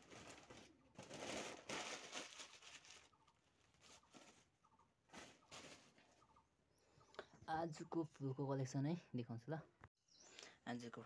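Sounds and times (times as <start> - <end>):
plastic bag rustling: 0.0 - 6.2.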